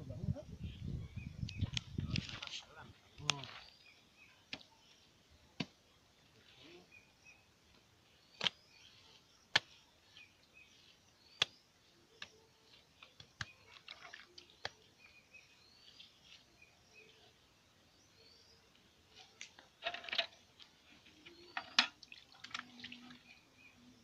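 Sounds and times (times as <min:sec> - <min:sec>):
birds chirping faintly: 0:00.1 - 0:24.0
wet clay slapping into mould: 0:14.6 - 0:14.9.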